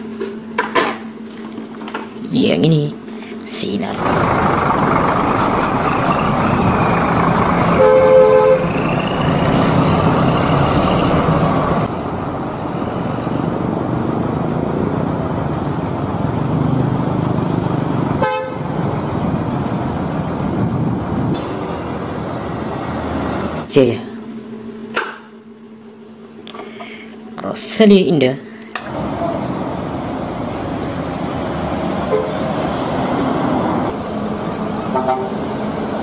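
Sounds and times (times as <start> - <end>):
bus engines running: 3.8 - 24.6, 28.8 - 36.0
traffic noise: 3.9 - 23.8, 28.7 - 36.0
vehicle horn: 7.7 - 9.3, 18.2 - 18.8, 32.1 - 32.4, 34.9 - 35.5.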